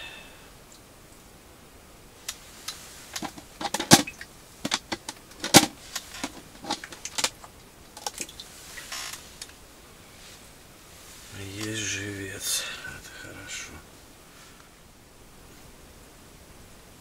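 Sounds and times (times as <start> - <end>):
plastic bucket and lid clattering: 3.2 - 7.4.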